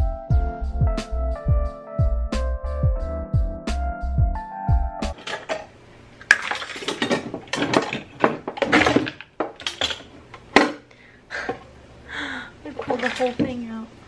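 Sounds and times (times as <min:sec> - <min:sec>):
background music: 0:00.0 - 0:05.2
metal utensils clattering in drawer: 0:05.2 - 0:05.7, 0:06.3 - 0:10.8.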